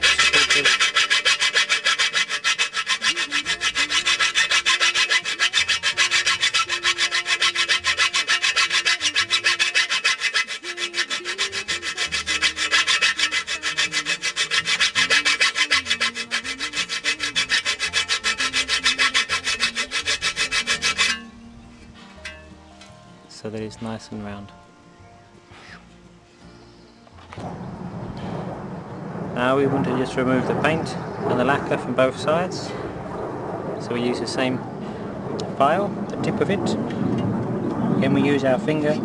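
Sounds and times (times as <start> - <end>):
file rasping on steel blade: 0.0 - 21.3.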